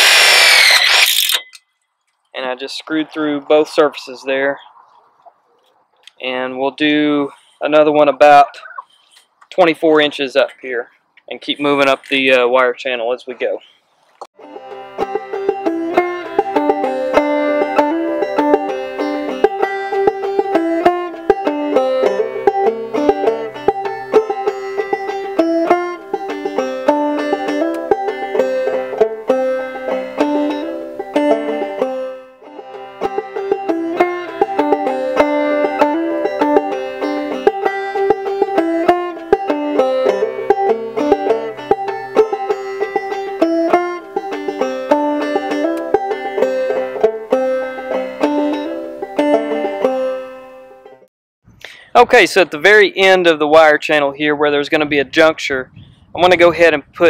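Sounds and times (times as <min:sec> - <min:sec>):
plucked banjo tune: 0:06.2 - 0:08.9, 0:14.4 - 0:51.1.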